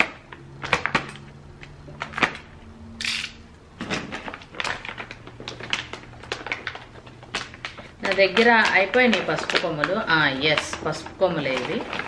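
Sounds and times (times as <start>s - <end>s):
packet rustling and crinkling: 3.8s - 12.0s.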